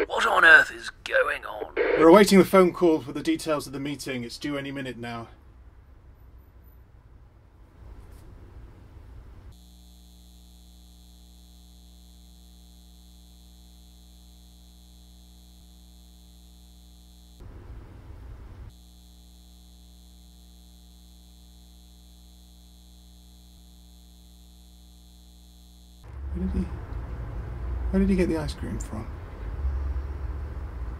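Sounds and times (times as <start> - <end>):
electrical mains hum: 0.0 - 5.1, 8.5 - 28.9
thin high buzz: 9.5 - 17.5, 18.7 - 26.2.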